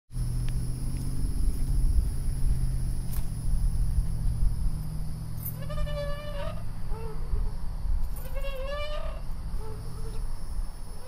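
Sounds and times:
low rumble with faint hum: 0.2s - 11.0s
swing chain creaking: 4.8s - 7.2s, 8.0s - 10.3s.

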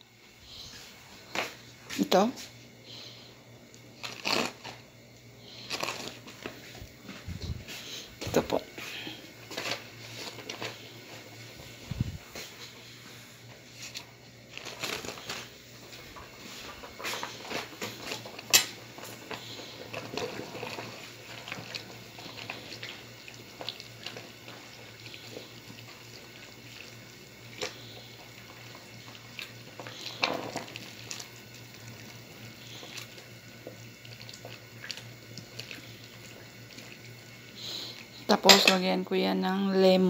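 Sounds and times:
low steady hum: 0.0s - 40.0s
soft wet stirring: 19.0s - 38.1s.

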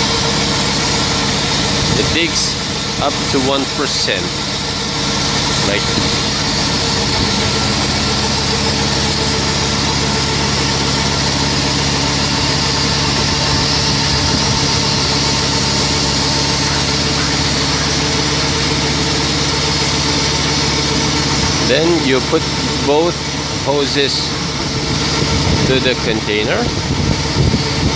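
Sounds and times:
vacuum pump humming: 0.0s - 27.9s.

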